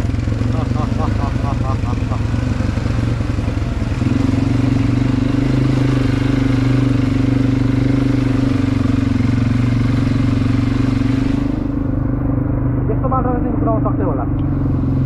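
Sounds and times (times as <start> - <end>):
quad bike engine running: 0.0 - 15.0.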